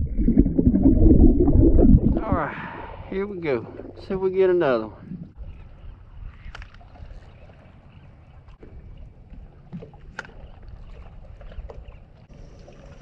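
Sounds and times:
low rumble: 0.0 - 5.7
waves lapping against boat: 2.2 - 13.0.

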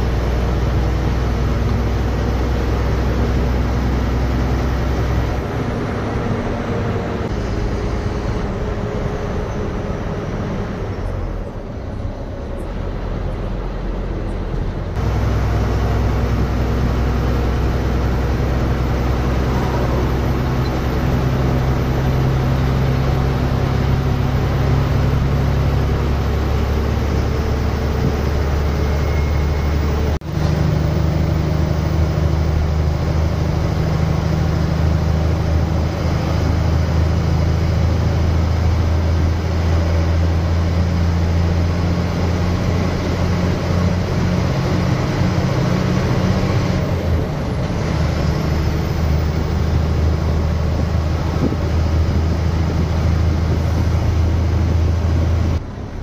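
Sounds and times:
diesel bus engine running: 0.0 - 56.0
road and tyre noise: 0.0 - 56.0.

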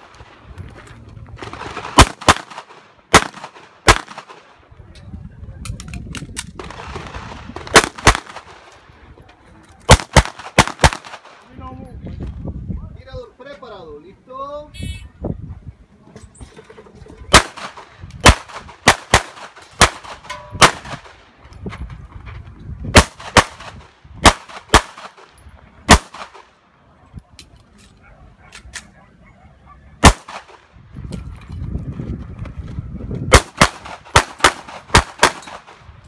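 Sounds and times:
pistol shots: 1.5 - 4.5, 7.6 - 8.6, 9.9 - 11.4, 17.3 - 21.1, 23.0 - 25.3, 25.9 - 26.5, 30.0 - 30.6, 33.3 - 35.8.

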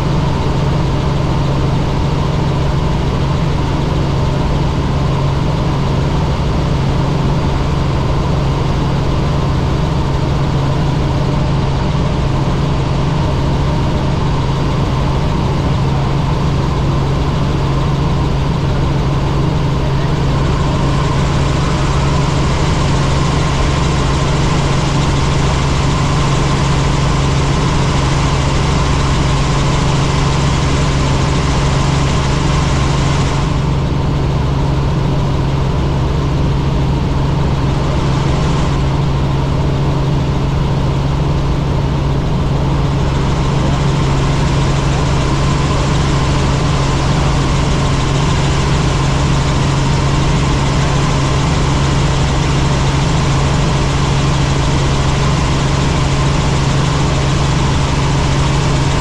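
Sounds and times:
helicopter engine and rotor drone: 0.0 - 59.0.

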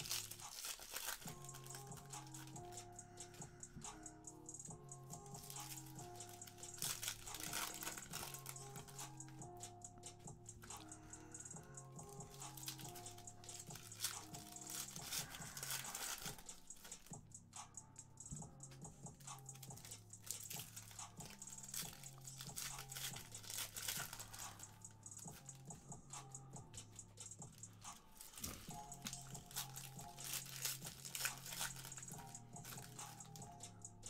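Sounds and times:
foil wrappers crinkling and tearing: 0.0 - 3.4, 5.4 - 9.3, 12.2 - 17.1, 19.5 - 24.8, 28.0 - 33.4
cards shuffled by hand: 0.0 - 4.0, 5.4 - 9.4, 12.0 - 17.2, 19.5 - 25.6, 27.3 - 33.5
quiet background music: 0.0 - 34.0.

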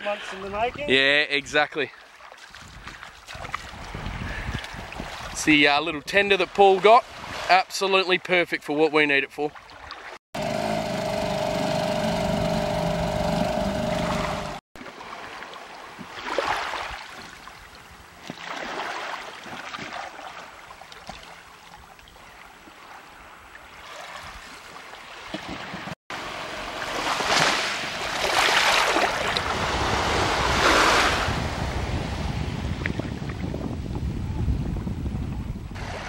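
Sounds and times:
wind noise on microphone: 2.6 - 6.3, 29.1 - 36.0
surging water: 9.5 - 32.0
small waves washing on sand: 13.9 - 32.8, 35.8 - 36.0.

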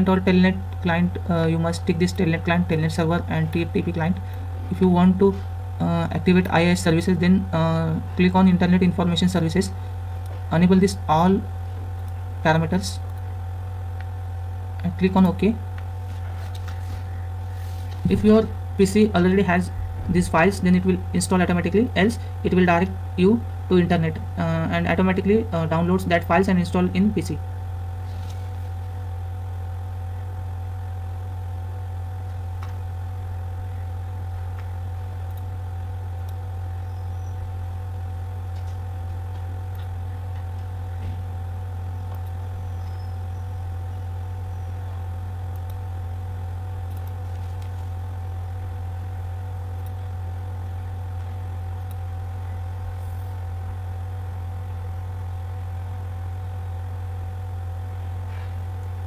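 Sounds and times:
steady low hum: 0.0 - 59.0
faint clicks: 46.8 - 47.8.

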